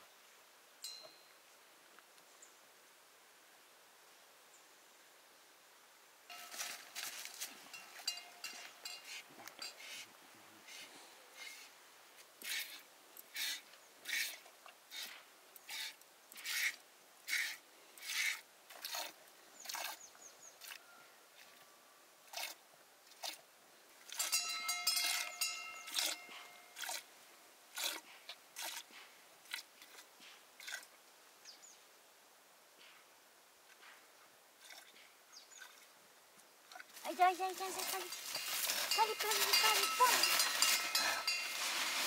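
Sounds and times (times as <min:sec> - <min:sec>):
utensil scraping strokes: 0:37.6 - 0:42.0
metal clattering: 0:38.1 - 0:42.0.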